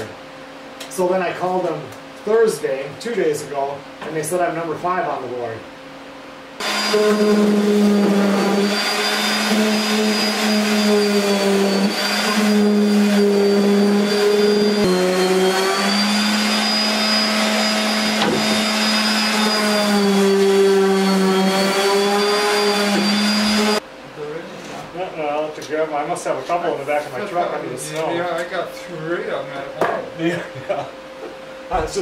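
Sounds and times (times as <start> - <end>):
power tool motor whining: 6.6 - 23.8.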